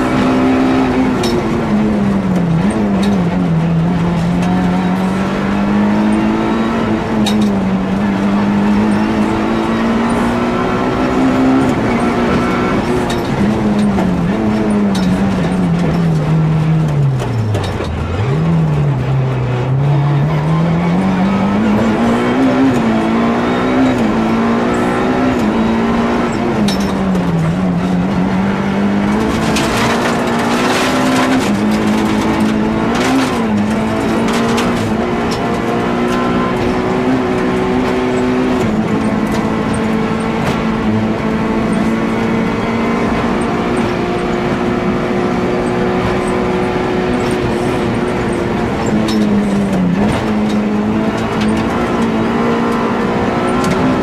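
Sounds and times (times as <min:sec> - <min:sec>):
rally car engine running hard: 0:00.0 - 0:54.0.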